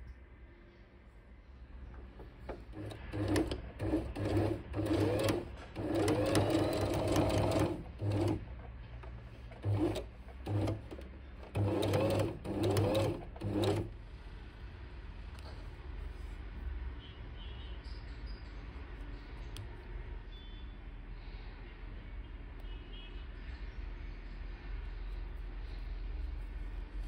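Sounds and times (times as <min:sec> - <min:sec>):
sewing machine stitching: 0:02.4 - 0:14.0.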